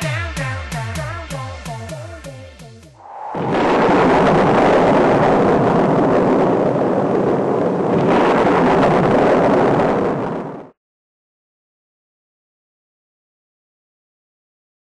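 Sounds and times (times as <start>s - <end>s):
wind-like rushing noise: 2.8s - 10.8s.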